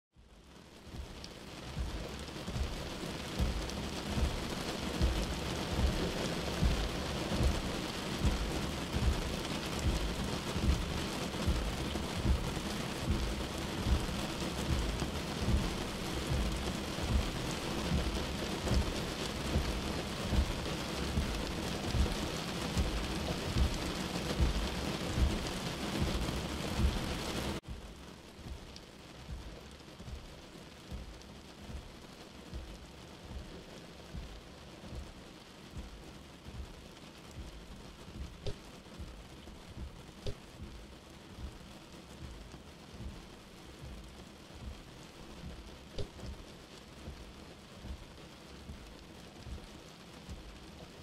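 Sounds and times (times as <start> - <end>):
steady rain-like hiss: 0.1 - 51.0
deep low rumble: 1.8 - 27.6.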